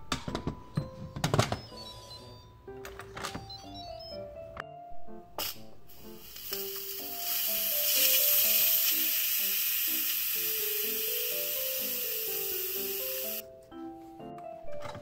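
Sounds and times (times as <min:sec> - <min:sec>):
light background music: 0:00.0 - 0:15.0
steam hissing from valve: 0:05.4 - 0:13.4.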